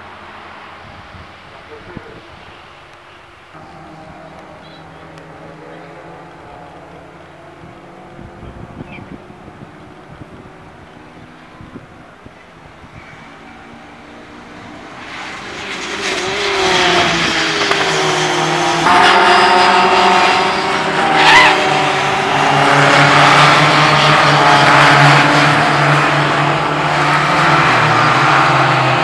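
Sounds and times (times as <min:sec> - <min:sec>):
racing car engines passing: 0:00.0 - 0:29.0
short high squeal: 0:18.9 - 0:21.8.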